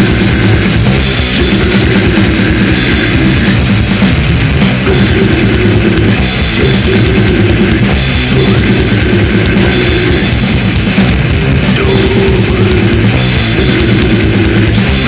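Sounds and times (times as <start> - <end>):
distorted electric guitar: 0.0 - 15.0
fast drumming with cymbals: 0.0 - 15.0.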